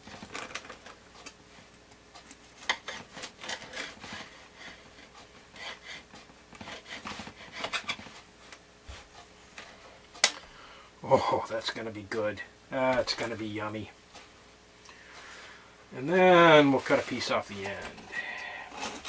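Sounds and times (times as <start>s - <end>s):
bread knife sawing crust: 5.6s - 8.1s.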